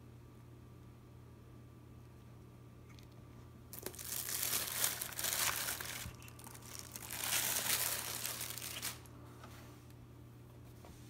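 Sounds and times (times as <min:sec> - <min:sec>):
plastic bag crinkling: 0:03.7 - 0:09.2.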